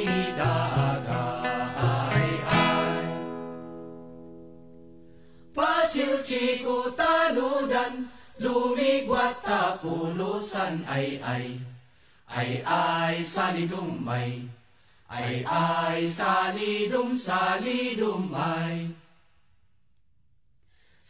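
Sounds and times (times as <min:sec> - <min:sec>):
voices chanting: 0:00.0 - 0:03.4, 0:05.6 - 0:14.5, 0:15.1 - 0:18.9
plucked string music: 0:00.0 - 0:05.0.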